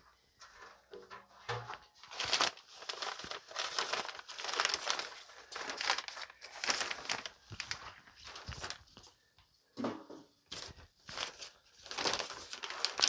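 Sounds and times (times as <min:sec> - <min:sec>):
plastic bag crinkling: 0:02.0 - 0:09.1, 0:10.5 - 0:13.0.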